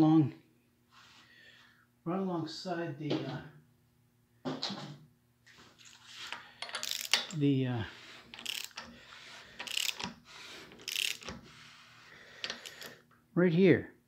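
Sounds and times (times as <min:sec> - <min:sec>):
socket ratchet clicking: 0:06.6 - 0:07.4, 0:08.3 - 0:08.9, 0:09.6 - 0:11.4, 0:12.4 - 0:13.0.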